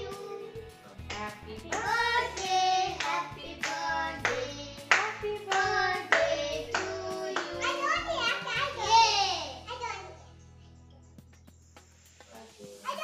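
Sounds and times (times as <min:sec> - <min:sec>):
group singing a birthday tune: 0:00.0 - 0:09.4
hands clapping along: 0:01.0 - 0:08.0.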